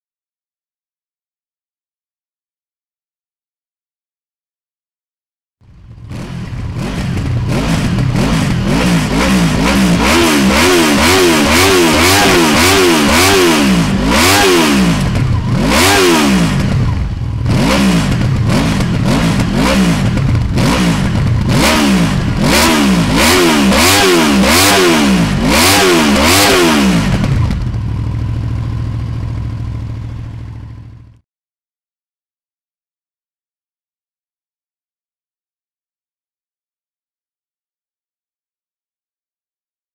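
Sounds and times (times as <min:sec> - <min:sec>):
motorcycle engine idling: 0:05.6 - 0:23.8, 0:26.3 - 0:31.2
motorcycle engine revving: 0:05.6 - 0:31.2.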